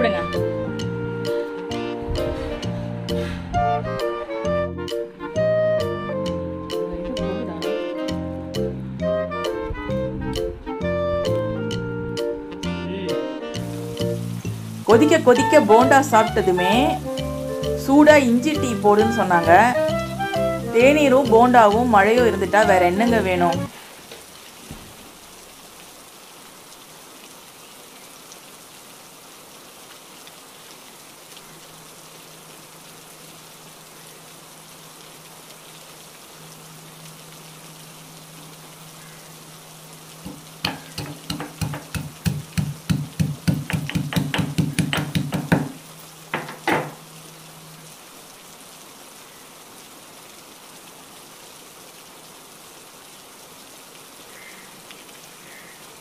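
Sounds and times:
steady rain: 0:00.0 - 0:56.0
pestle pounding in iron mortar: 0:40.6 - 0:46.9.

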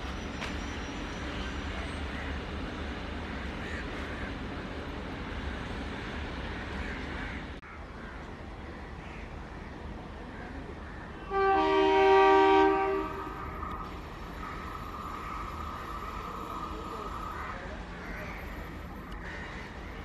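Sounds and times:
train rumbling past: 0:00.0 - 0:20.0
locomotive air horn blast: 0:11.3 - 0:13.8.

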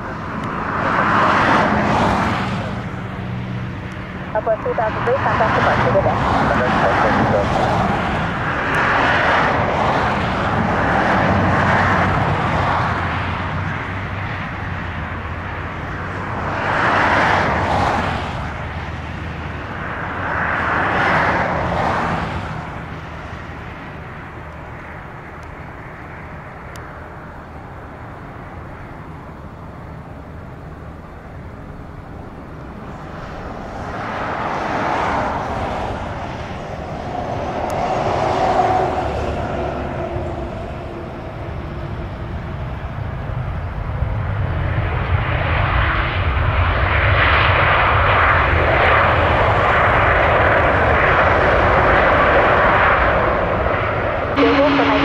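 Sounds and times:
jet airliner engine noise: 0:00.0 - 0:55.0.

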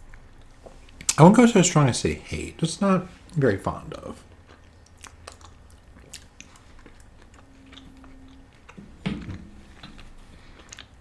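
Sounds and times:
chewing and mouth sounds: 0:04.2 - 0:11.0.

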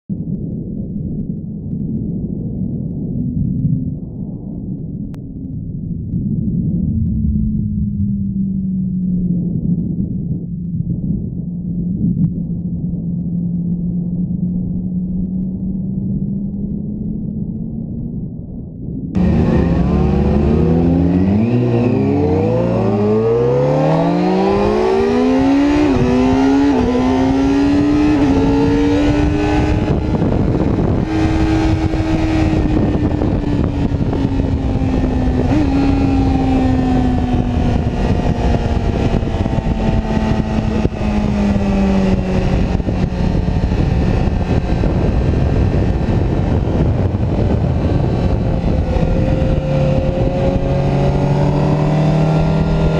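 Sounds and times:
wind rush: 0:00.1 - 0:52.9
motorcycle engine revving: 0:19.2 - 0:52.9.

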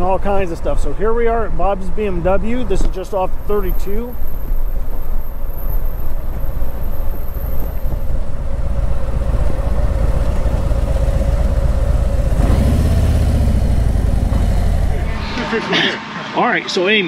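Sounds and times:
deeper engine note: 0:00.0 - 0:16.6
motorcycle engine running: 0:04.1 - 0:15.2.

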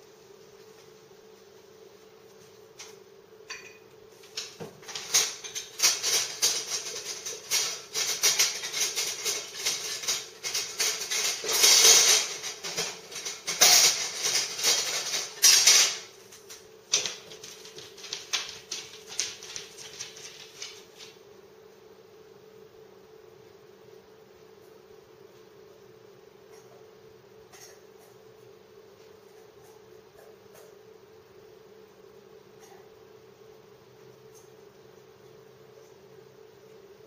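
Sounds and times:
dog rummaging clicks and rattles: 0:04.3 - 0:16.1, 0:16.9 - 0:21.0.

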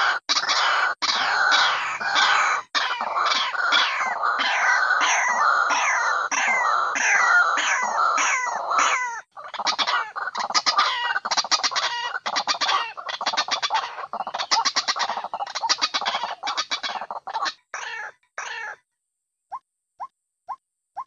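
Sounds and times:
bird harsh repeated calls: 0:00.0 - 0:21.0.

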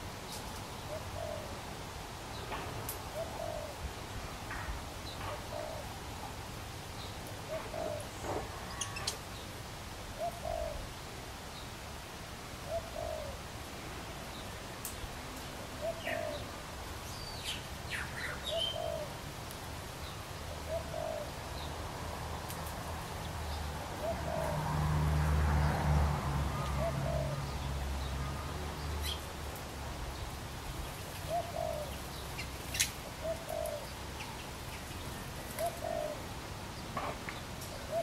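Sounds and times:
bird cooing: 0:00.9 - 0:01.6, 0:03.1 - 0:03.8, 0:05.3 - 0:06.0, 0:07.4 - 0:09.2, 0:10.2 - 0:10.9, 0:12.6 - 0:13.4, 0:15.8 - 0:16.5, 0:18.2 - 0:19.2, 0:20.5 - 0:21.4, 0:24.0 - 0:24.6, 0:26.6 - 0:27.7, 0:31.2 - 0:34.4, 0:35.4 - 0:36.3, 0:37.7 - 0:38.0.

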